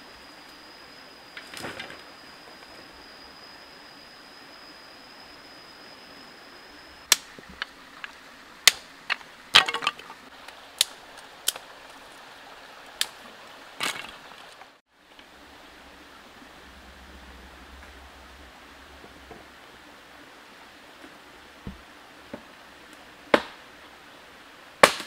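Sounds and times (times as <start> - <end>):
flowing stream: 0.0 - 24.8
wooden sticks cracking: 7.1 - 12.0.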